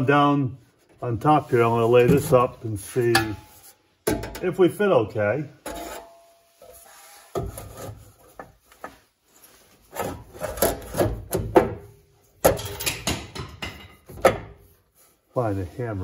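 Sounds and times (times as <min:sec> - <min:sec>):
steel panel scraping and knocking: 0:01.5 - 0:04.5, 0:05.6 - 0:09.0.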